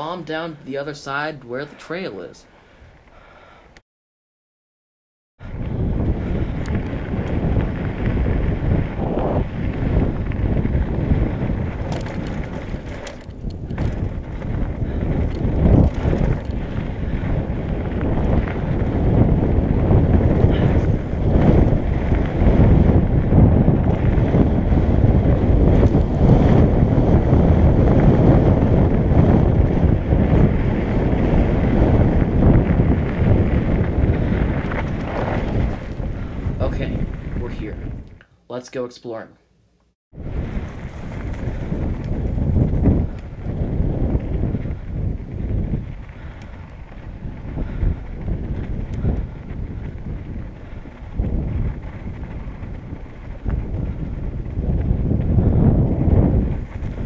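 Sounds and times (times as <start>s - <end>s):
wind rushing over microphone: 0.0s - 3.6s, 5.4s - 38.3s, 40.1s - 57.0s
bike tyres rolling on gravel: 5.4s - 38.1s, 40.2s - 57.0s
tyres rolling over gravel: 11.3s - 18.8s
sharp clicks and rattles: 11.8s - 14.6s, 15.2s - 16.9s.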